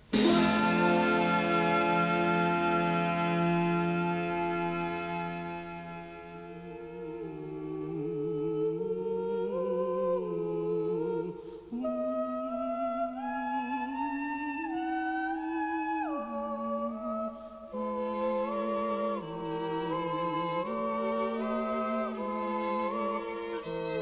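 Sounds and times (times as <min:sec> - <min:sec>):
person humming a melody: 0:06.5 - 0:24.0.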